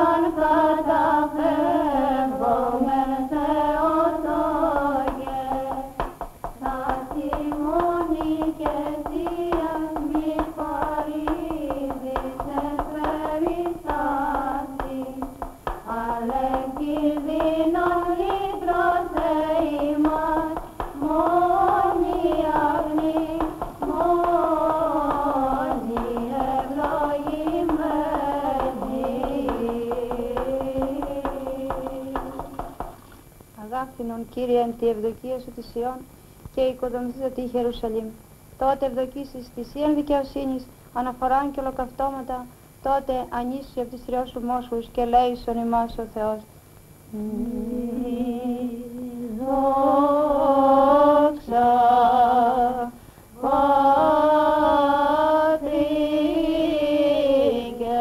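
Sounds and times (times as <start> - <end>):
women chanting in unison: 0.0 - 6.0, 6.6 - 32.9, 47.1 - 58.0.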